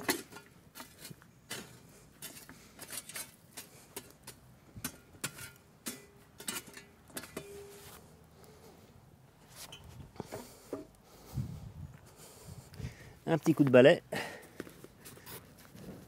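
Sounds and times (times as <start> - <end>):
shovel breaking up embers: 0.0 - 7.8.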